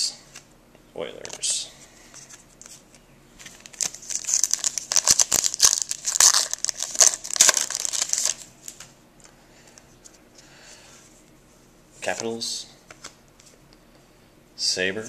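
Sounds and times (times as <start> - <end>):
foil wrapper tearing and crinkling: 3.5 - 8.5.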